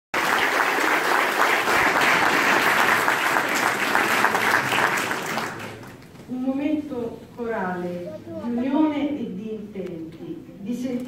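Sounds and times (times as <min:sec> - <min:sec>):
audience applauding: 0:00.1 - 0:06.2.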